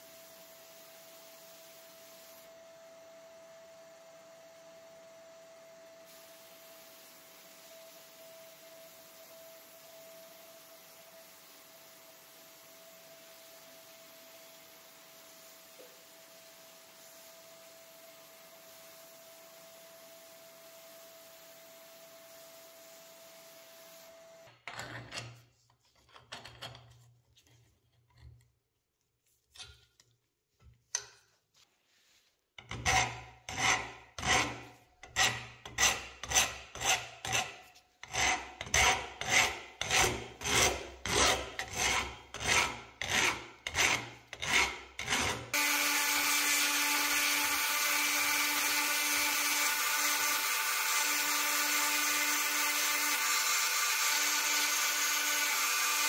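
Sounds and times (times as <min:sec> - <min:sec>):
hand file rasping on metal: 0:32.6 - 0:47.6.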